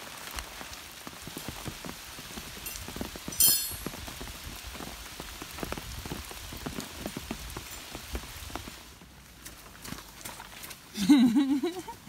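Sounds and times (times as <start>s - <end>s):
rain falling: 0.0s - 12.0s
raindrops striking: 0.0s - 12.0s.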